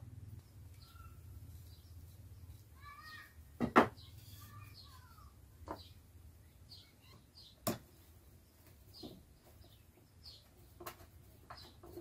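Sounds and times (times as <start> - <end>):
small birds chirping: 0.0 - 12.0
wood knocking on wood: 3.6 - 4.0.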